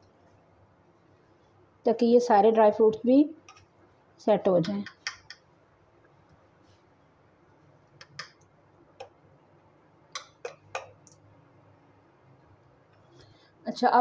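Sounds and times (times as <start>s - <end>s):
spoon clicking against nuts and pan: 8.0s - 9.1s, 10.2s - 11.2s.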